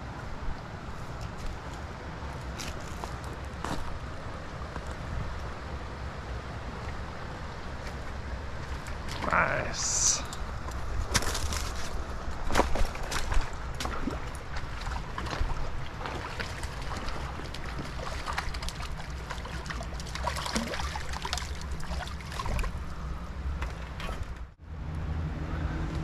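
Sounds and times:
creek water babbling: 0.0 - 24.0.

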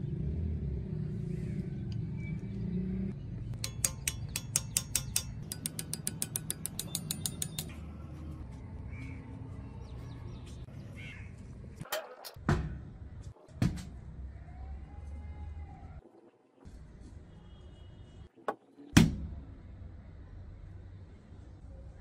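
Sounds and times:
small hammer tapping metal punch: 3.6 - 7.7.

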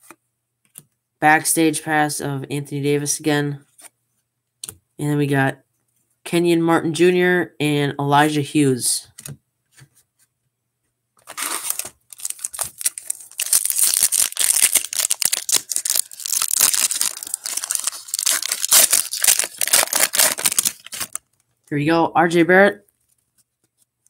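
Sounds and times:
foil wrapper crinkling: 11.2 - 21.4.

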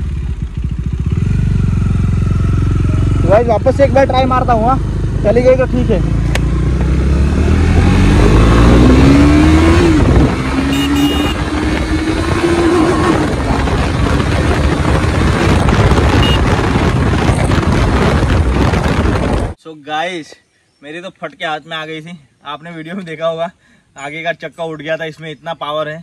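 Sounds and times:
motorcycle engine accelerating: 0.0 - 19.6
wind rush on microphone: 6.8 - 19.6.

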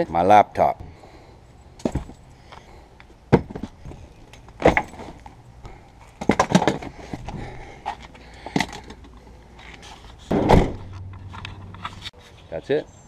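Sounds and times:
bags thumping and knocking: 3.3 - 4.0, 4.6 - 5.2.

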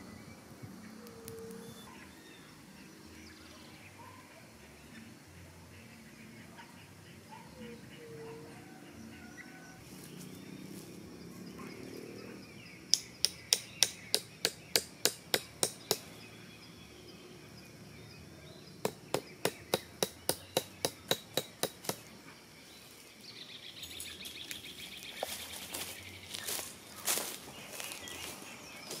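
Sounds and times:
faint bird calls: 0.8 - 16.8
stake being hammered into ground: 12.9 - 16.2, 18.8 - 22.1.

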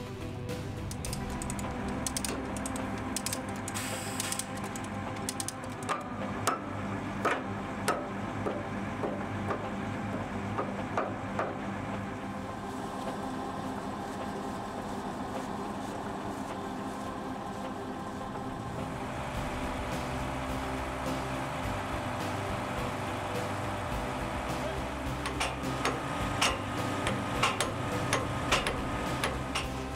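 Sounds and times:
engine hum: 0.0 - 29.9
hammer striking steel pin: 25.2 - 29.8.

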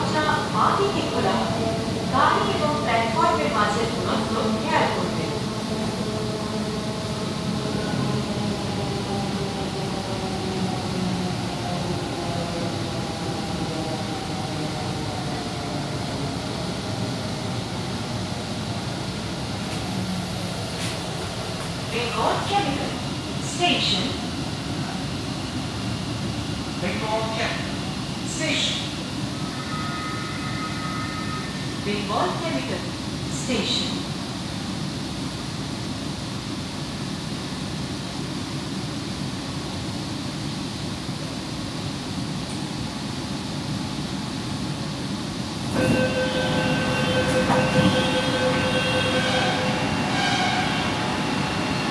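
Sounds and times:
metro train rumble and hiss: 0.0 - 51.9
train running rumble: 31.6 - 51.9.

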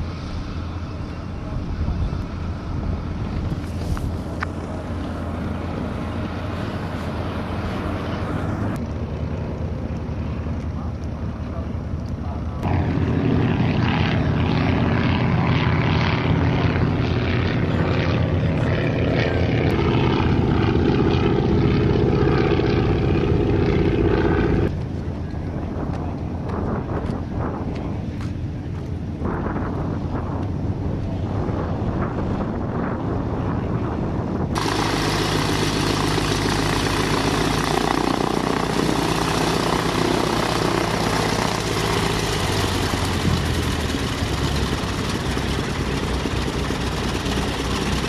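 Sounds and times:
propeller airplane engines droning: 0.0 - 48.0.

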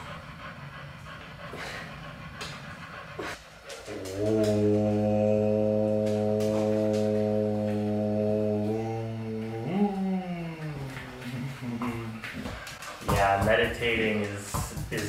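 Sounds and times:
sliding vocal sound: 3.2 - 13.1
man chanting om: 4.2 - 10.9.

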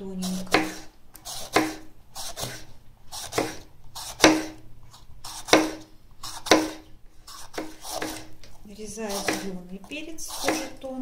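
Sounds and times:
knife slicing pepper: 0.2 - 8.5, 9.1 - 10.9
knife knocking on wooden board: 5.5 - 5.8.

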